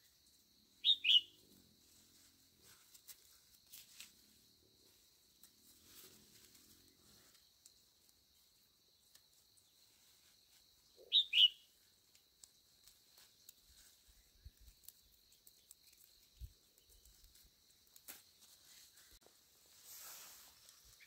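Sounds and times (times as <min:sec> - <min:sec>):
bird chirping: 0:00.8 - 0:01.5, 0:10.8 - 0:11.8.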